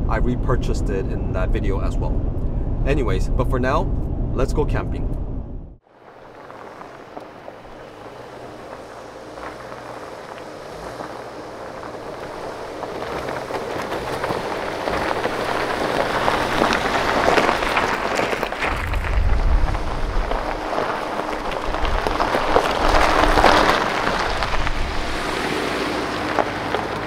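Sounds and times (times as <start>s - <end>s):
deep vehicle rumble: 0.0s - 27.0s
tyres crunching on gravel: 5.9s - 27.0s.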